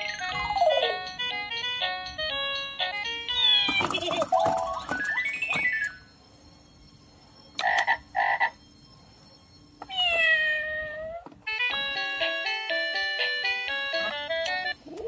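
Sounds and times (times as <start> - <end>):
tinkling electronic tune: 0.0 - 10.5
toy cat meow: 3.3 - 4.1, 9.8 - 11.3
toy frog croaks: 7.6 - 8.6.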